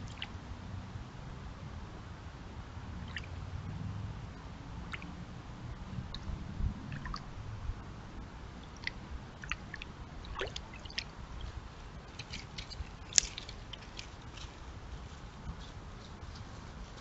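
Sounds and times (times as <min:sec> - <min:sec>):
small drips: 0:00.0 - 0:00.3, 0:03.0 - 0:03.3, 0:06.9 - 0:07.2, 0:08.6 - 0:14.2
paws splashing in water and mud: 0:08.7 - 0:15.8.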